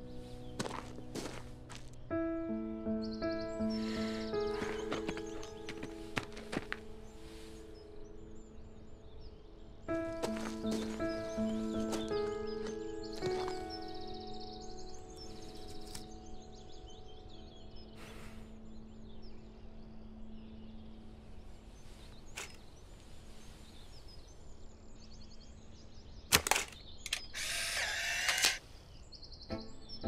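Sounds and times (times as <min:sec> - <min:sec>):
camera shutter click: 0:26.3 - 0:28.6
camera motor whirr: 0:27.1 - 0:28.6.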